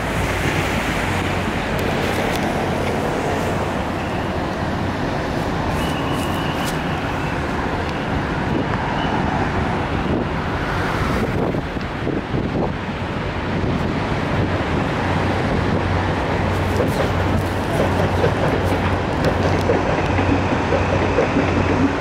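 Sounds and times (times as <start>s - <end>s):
buses and cars passing: 0.0s - 22.0s
wind buffeting microphone: 6.4s - 22.0s.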